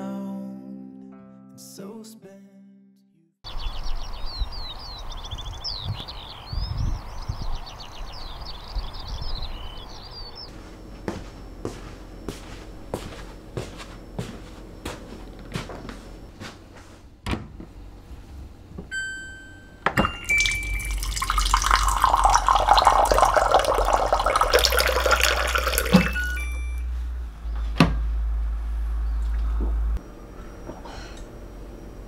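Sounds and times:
low steady hum: 10.5 - 32.0
short electronic beep: 18.9 - 21.1, 25.9 - 26.9
water pouring into glass: 20.0 - 26.8.

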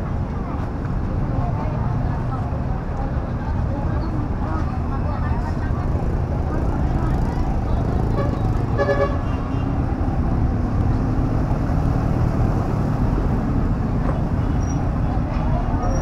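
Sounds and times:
street traffic: 0.0 - 16.0
car horn toot: 8.2 - 9.7.

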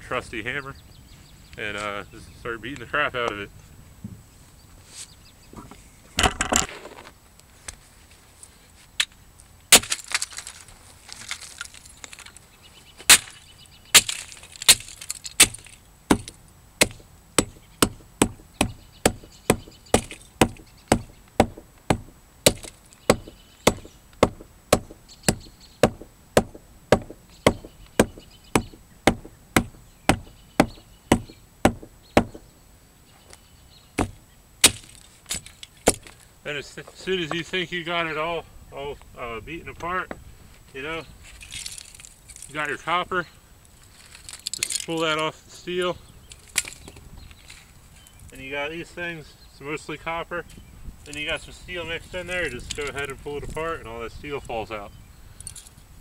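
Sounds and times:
plastic cracking and breaking: 9.7 - 12.4, 13.1 - 16.4.

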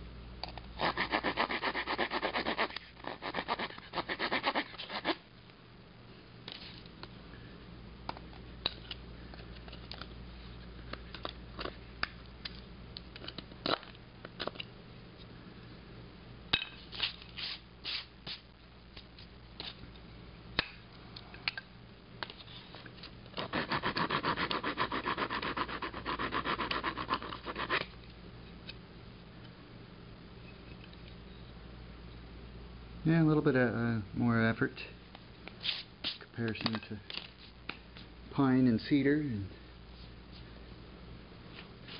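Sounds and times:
saw cutting wood: 0.8 - 5.1, 23.5 - 27.8.

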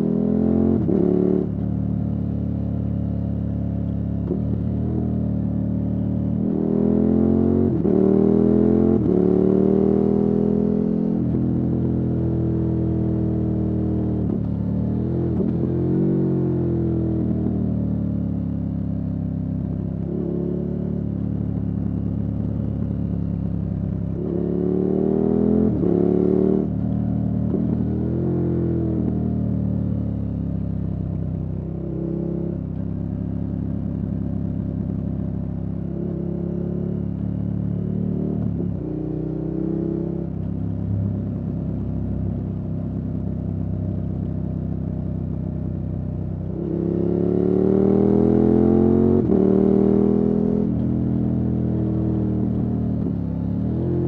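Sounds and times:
motorcycle engine revving: 0.0 - 1.6, 4.2 - 30.8, 45.2 - 54.0.

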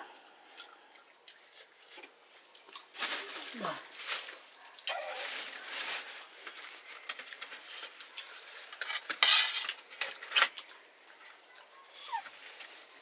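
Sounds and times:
scraping rustle: 2.9 - 10.6
metal dishes clinking: 8.8 - 9.8.

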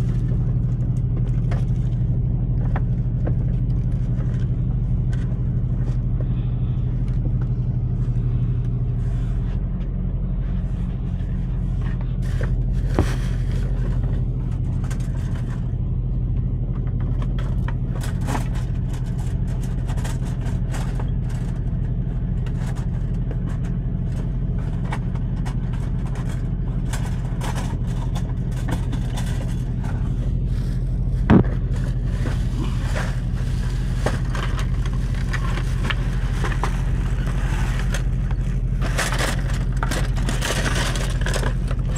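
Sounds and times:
diesel truck engine idling: 0.0 - 41.9
plastic bags rustling: 27.7 - 41.9.

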